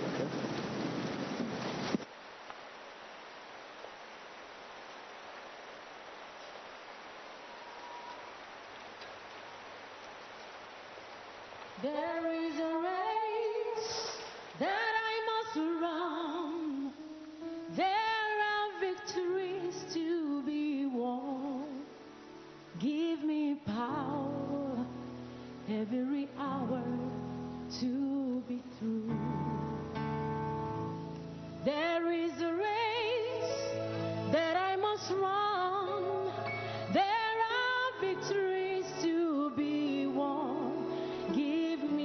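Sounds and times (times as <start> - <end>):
woman singing worship song: 11.8 - 17.1, 17.7 - 22.1, 22.7 - 29.6, 31.6 - 42.0.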